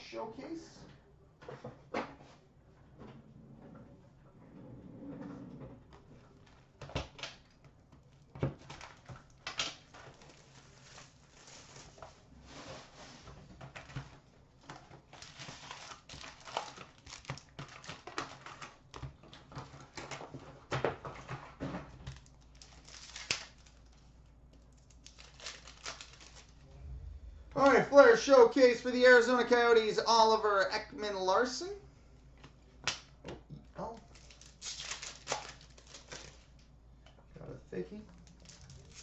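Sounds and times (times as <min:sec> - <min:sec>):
pack wrappers crinkling: 0:07.4 - 0:12.0, 0:14.6 - 0:20.2, 0:22.0 - 0:26.6, 0:33.8 - 0:36.7, 0:38.1 - 0:39.0
packs clicking on glass counter: 0:13.7 - 0:26.6
wrapper tearing open: 0:15.1 - 0:19.0, 0:22.1 - 0:24.0, 0:24.8 - 0:26.6, 0:34.0 - 0:36.6, 0:38.2 - 0:39.0.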